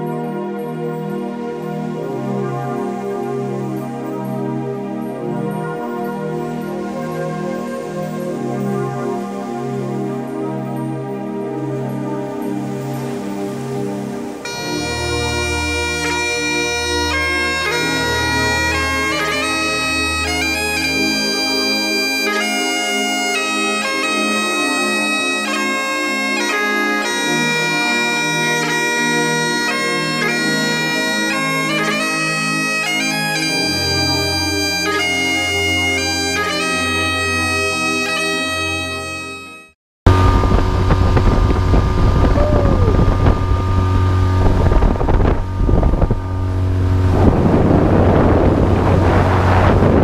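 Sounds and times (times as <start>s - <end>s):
bagpipe tune with drone: 0.0s - 50.0s.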